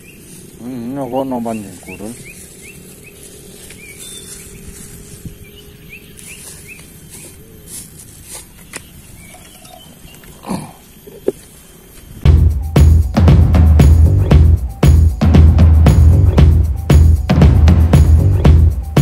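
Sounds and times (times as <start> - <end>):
bird chirping: 0.0 - 12.8.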